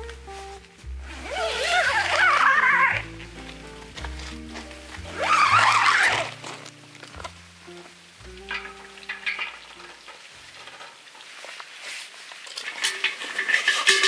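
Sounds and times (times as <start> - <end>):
soft background music: 0.0 - 11.2
tent fabric rustling: 0.0 - 14.0
metal pot clinking: 8.4 - 11.4, 12.4 - 14.0.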